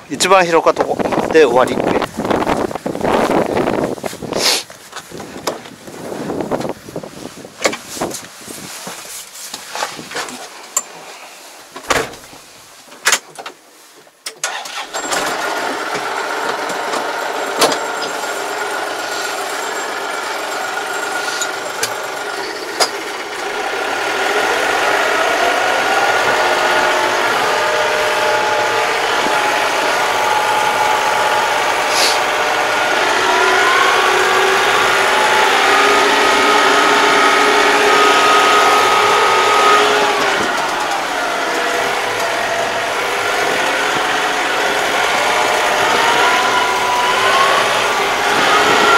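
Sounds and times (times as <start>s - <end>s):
tractor diesel engine running: 14.4s - 48.9s.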